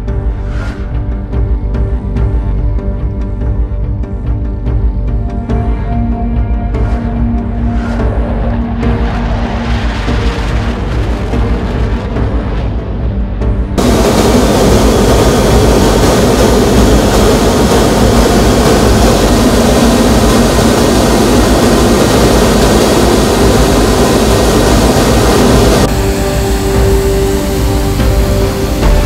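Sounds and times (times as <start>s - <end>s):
jet engine noise: 5.5s - 29.0s.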